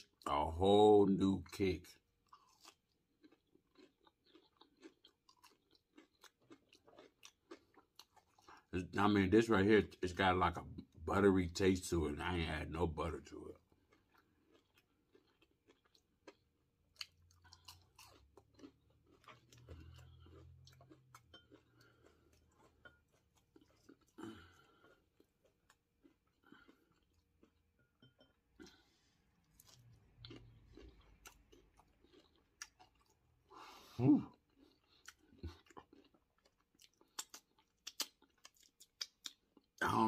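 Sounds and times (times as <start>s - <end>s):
chewing fried food: 1.2s - 40.0s
wet mouth clicks: 37.0s - 39.4s.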